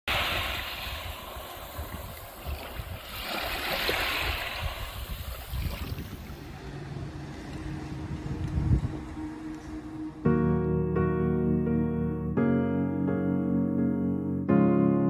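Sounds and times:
waves washing onto beach: 0.1s - 9.6s.

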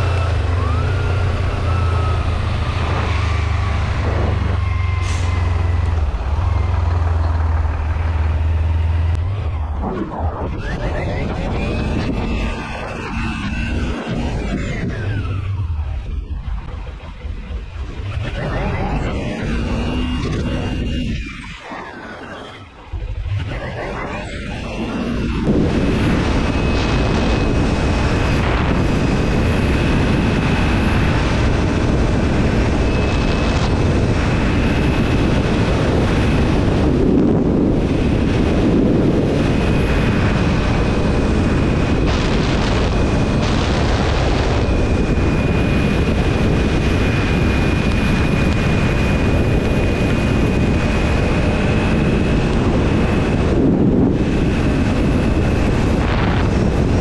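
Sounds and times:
wind rushing over microphone: 0.0s - 57.0s
thin high whine: 7.8s - 37.0s.

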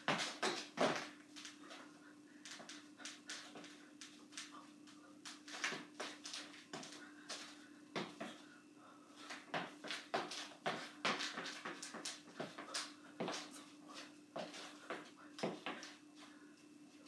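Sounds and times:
sneakers squeaking on hardwood floor: 0.0s - 1.1s.

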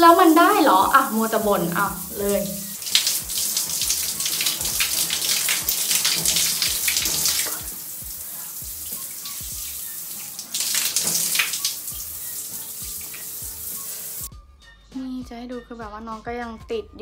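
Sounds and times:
shower spray splattering on face: 0.1s - 14.3s.

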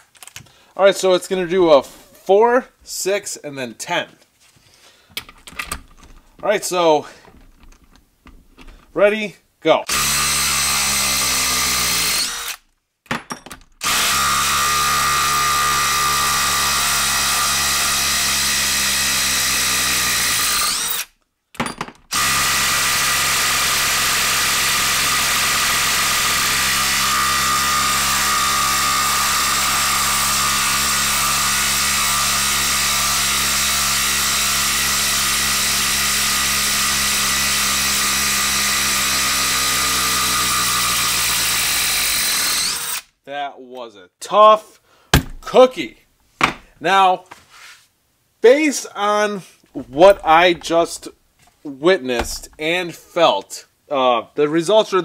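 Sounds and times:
impact driver hammering: 45.1s - 45.5s, 52.2s - 52.6s.

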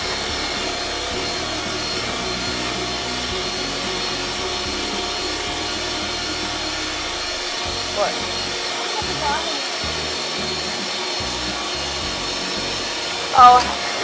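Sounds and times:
electric mixer whining: 0.0s - 14.0s.

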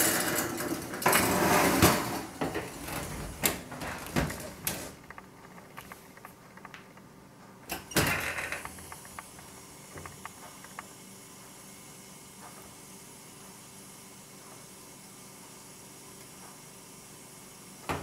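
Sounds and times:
rush of noise from oven: 0.0s - 5.0s
oven rack scraping: 0.0s - 6.2s.

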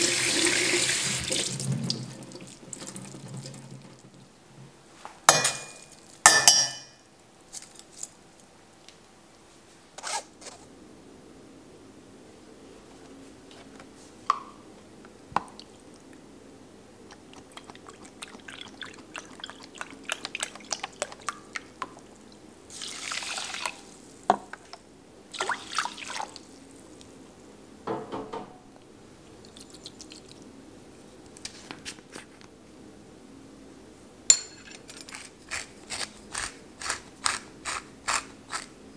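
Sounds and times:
broth pouring and splashing: 17.4s - 21.7s, 22.7s - 23.9s.

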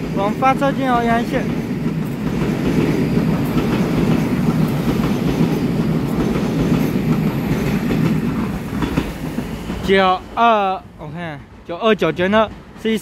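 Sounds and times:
wheels clacking over rail joints: 0.0s - 10.2s
train wheels rumbling on rails: 0.0s - 13.0s.

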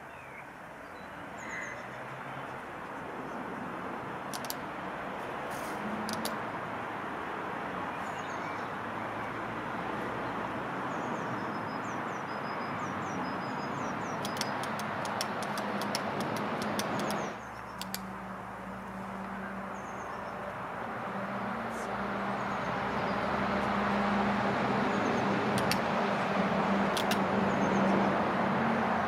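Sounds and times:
outdoor background noise: 0.0s - 29.0s
sharp clicks: 4.3s - 4.6s, 6.0s - 6.4s, 14.2s - 18.1s, 25.5s - 25.9s, 26.9s - 27.2s
small birds chirping: 10.9s - 18.0s.

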